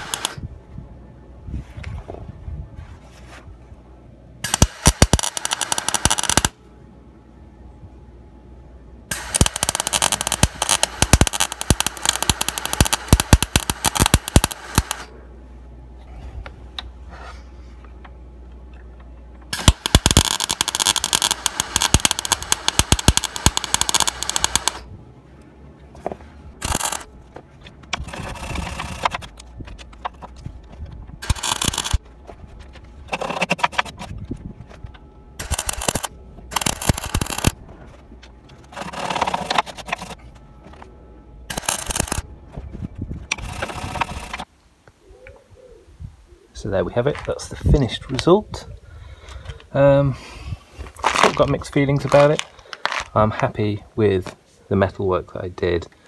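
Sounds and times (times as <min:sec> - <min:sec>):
welder crackling buzz: 0:00.0 - 0:00.4, 0:04.4 - 0:06.6, 0:09.1 - 0:15.1, 0:19.5 - 0:24.9, 0:26.6 - 0:27.1, 0:31.2 - 0:32.0, 0:35.4 - 0:37.6, 0:41.5 - 0:42.2, 0:43.3 - 0:44.5.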